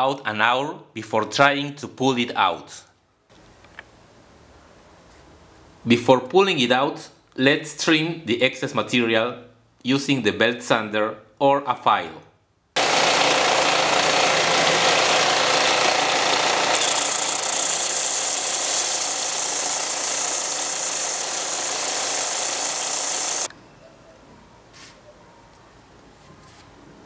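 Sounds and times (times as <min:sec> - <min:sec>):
belt sander grinding metal: 0:12.8 - 0:23.5.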